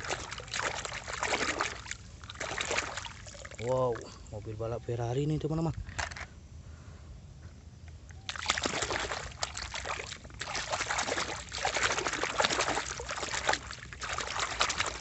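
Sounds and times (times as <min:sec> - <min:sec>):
water splashing and sloshing: 0:00.0 - 0:04.3, 0:08.2 - 0:15.0.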